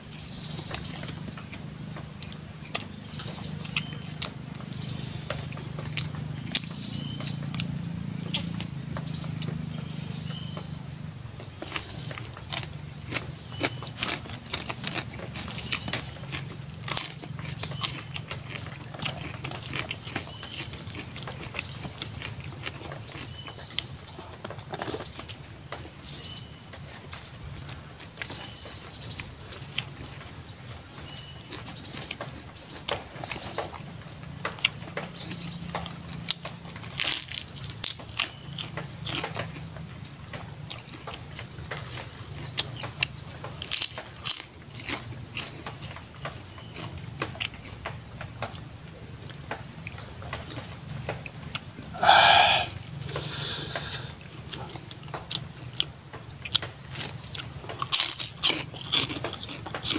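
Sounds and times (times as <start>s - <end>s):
birds chirping: 0.0s - 27.1s, 47.9s - 54.7s
wet chewing and munching: 0.0s - 59.9s.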